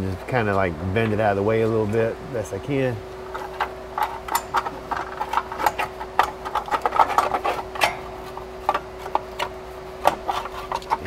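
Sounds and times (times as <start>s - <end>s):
sheet metal clicking and rattling: 3.4s - 11.0s.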